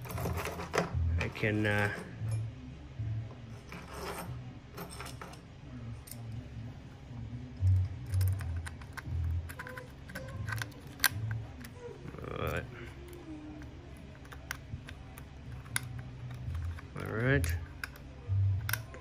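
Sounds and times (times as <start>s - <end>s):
small metal parts clinking: 0.0s - 2.5s, 3.6s - 5.4s, 8.0s - 13.2s, 14.2s - 19.0s.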